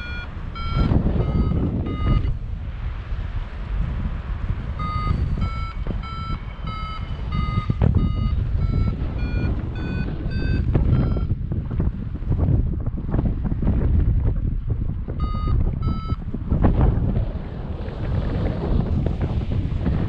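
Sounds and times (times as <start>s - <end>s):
short electronic beeps: 0.0s - 2.4s, 4.8s - 11.4s, 15.2s - 16.2s
wind buffeting microphone: 0.0s - 20.0s.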